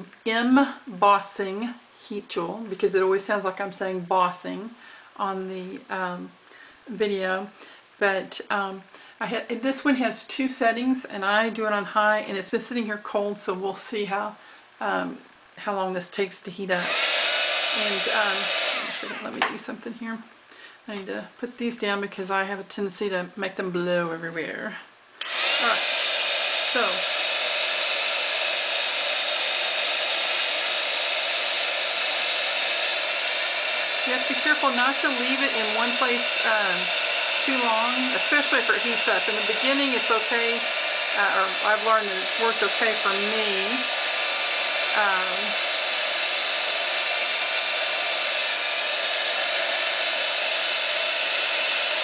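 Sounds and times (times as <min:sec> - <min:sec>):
heat tool blowing hot air: 0:16.7 - 0:19.6, 0:25.2 - 0:52.0.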